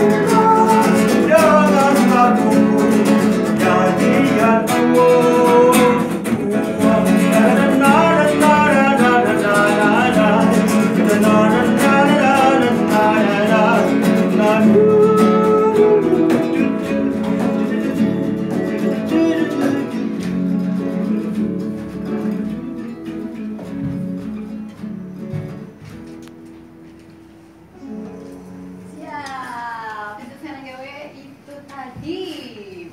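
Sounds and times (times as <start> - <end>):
man singing: 0.0 - 21.5
acoustic guitar: 0.0 - 32.7.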